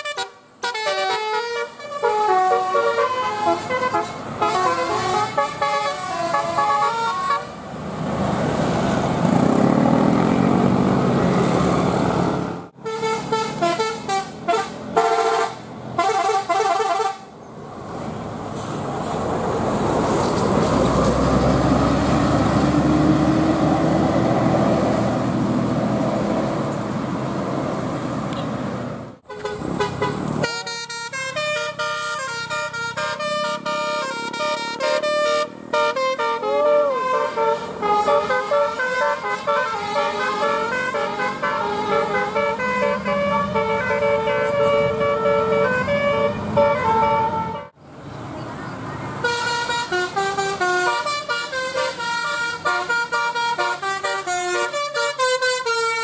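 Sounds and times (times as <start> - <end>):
bus horns playing melodic tunes: 0.0 - 7.6, 12.8 - 17.4, 29.2 - 47.8, 49.2 - 56.0
bus diesel engines running: 0.0 - 56.0.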